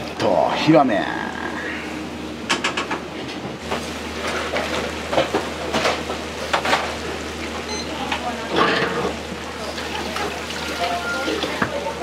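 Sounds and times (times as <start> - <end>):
kitchen equipment hum: 0.0 - 12.0.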